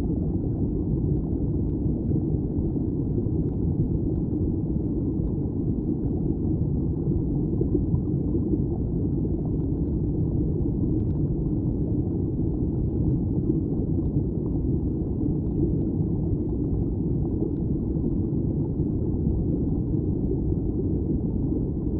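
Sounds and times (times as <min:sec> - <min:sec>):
underwater stream current rumble: 0:00.0 - 0:21.9.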